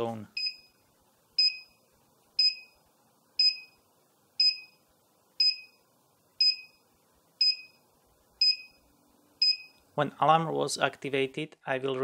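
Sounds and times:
alarm panel beeping: 0.4 - 0.8, 1.4 - 1.8, 2.4 - 2.8, 3.4 - 3.8, 4.4 - 4.8, 5.4 - 5.8, 6.4 - 6.8, 7.4 - 7.8, 8.4 - 8.8, 9.4 - 9.8.

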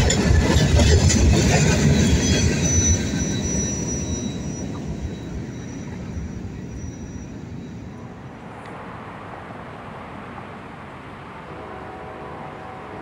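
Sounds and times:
high wheel squeal: 0.0 - 8.3
train wheels rumbling on rails: 0.0 - 10.1.

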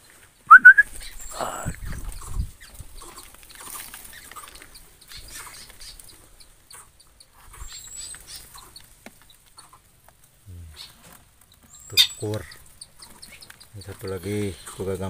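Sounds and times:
birds chirping: 0.0 - 15.0
thin high bird whistle: 0.5 - 1.7
short low bird call: 0.5 - 1.8.

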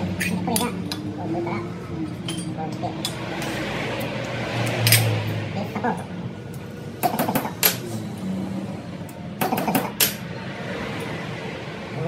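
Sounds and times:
metal clinks and taps: 2.2 - 3.2, 4.6 - 5.2.

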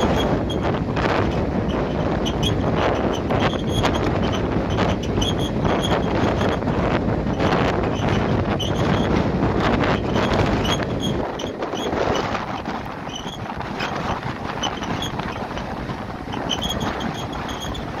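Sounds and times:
rail car rumbling: 0.0 - 18.0
wind buffeting microphone: 0.0 - 18.0
faint high squeaks: 1.7 - 6.6, 7.3 - 9.2, 10.0 - 15.6, 16.3 - 18.0.

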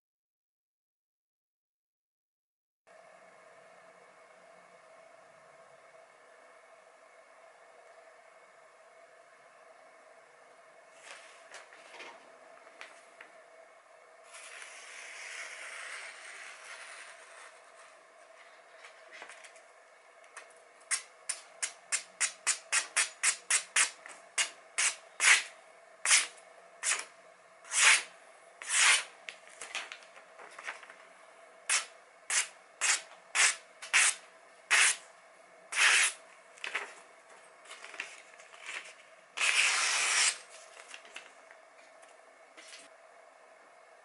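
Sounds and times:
knife slicing paper: 27.7 - 29.1, 31.7 - 35.0, 35.7 - 36.8, 37.9 - 40.9.

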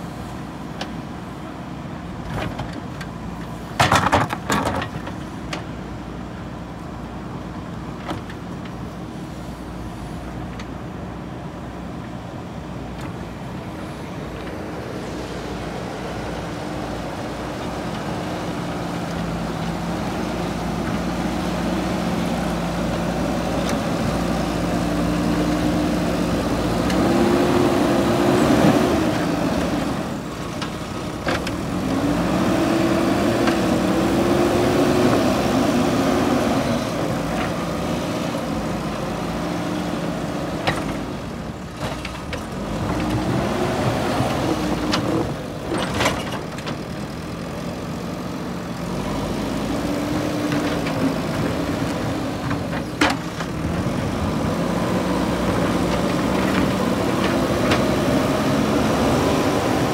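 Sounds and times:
diesel engine revving: 13.4 - 59.9.

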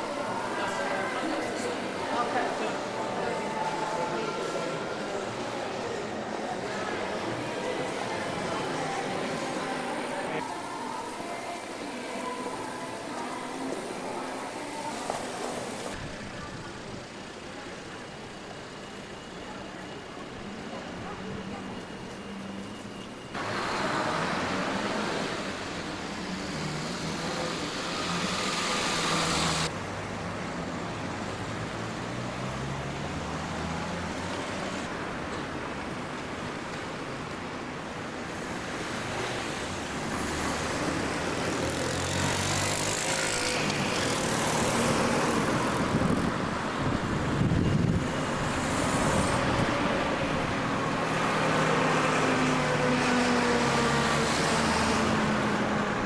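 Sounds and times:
cars driving past: 38.4 - 56.0.

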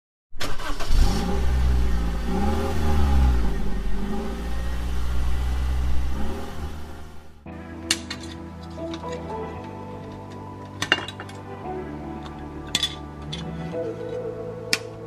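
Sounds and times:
engine revving: 0.4 - 7.5.

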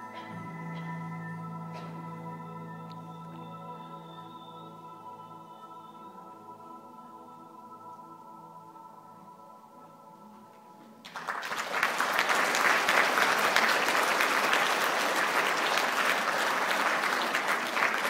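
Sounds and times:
quiet music with held notes: 0.0 - 11.2
audience applause: 11.0 - 18.0.

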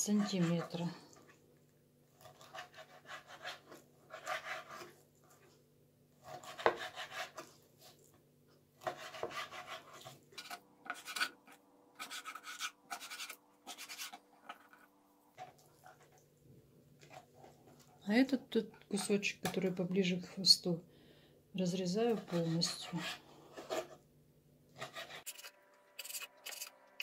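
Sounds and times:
knife scraping wooden board: 0.0 - 0.8, 2.2 - 5.5, 6.2 - 8.0, 8.8 - 16.2, 22.0 - 24.0, 24.8 - 26.7
knife slicing raw fish: 6.2 - 7.5, 8.8 - 11.3.

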